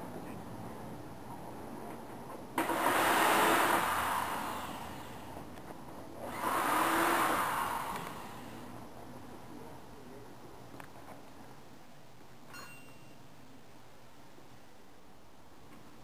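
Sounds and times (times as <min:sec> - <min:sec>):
pneumatic ratchet whirring: 0:02.6 - 0:05.2, 0:06.2 - 0:08.6.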